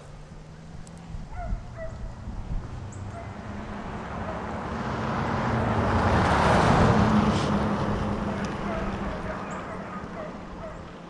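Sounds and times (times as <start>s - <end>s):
pickup truck approaching: 0.0s - 11.0s.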